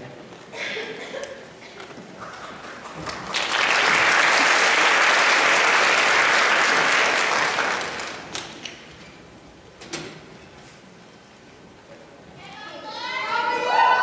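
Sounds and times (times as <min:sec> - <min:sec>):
audience applauding: 0:02.2 - 0:08.6.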